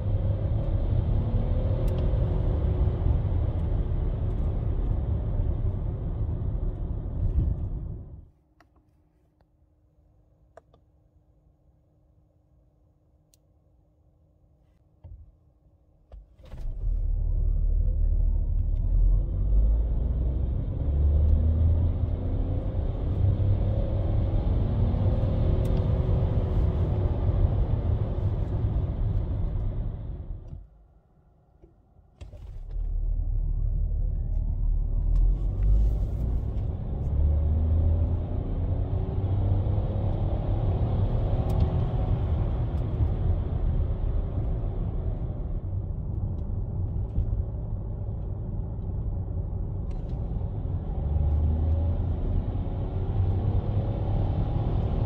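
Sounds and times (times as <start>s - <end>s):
car engine accelerating: 16.5s - 30.6s, 32.3s - 55.0s.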